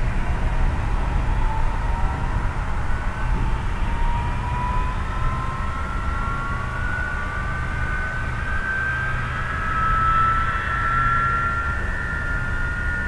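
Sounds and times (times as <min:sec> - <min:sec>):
constant low rumble: 0:00.0 - 0:13.0
jet engines whining: 0:00.0 - 0:13.0.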